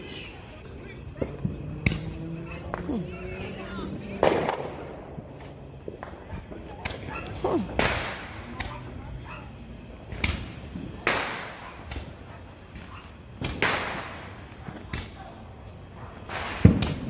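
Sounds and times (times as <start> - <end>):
fireworks bangs with echoes: 4.0 - 8.8, 10.1 - 15.3, 16.2 - 17.0
faint firework pops: 4.2 - 5.0, 16.2 - 17.0.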